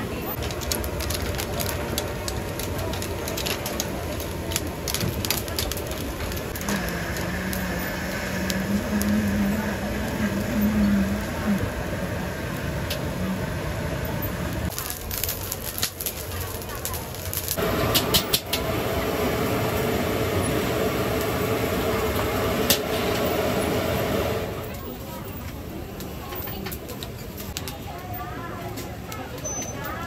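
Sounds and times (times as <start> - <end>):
outdoor market bustle: 0.0 - 30.0
squid crackling on a grill: 0.1 - 30.0
low drone: 6.5 - 14.7.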